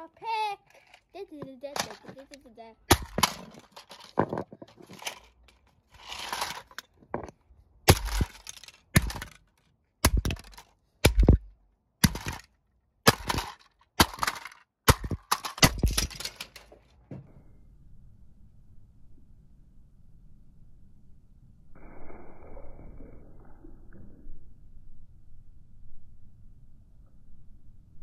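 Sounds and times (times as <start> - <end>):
plastic cracking and pieces rattling: 0.7 - 11.4, 12.0 - 16.9
blows smashing plastic toy: 2.9 - 4.2, 7.9 - 9.4, 12.0 - 16.2.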